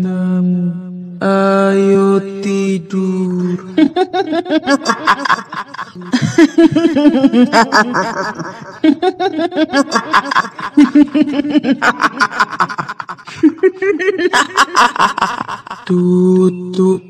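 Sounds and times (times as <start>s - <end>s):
woman cackling laugh: 3.8s - 15.9s.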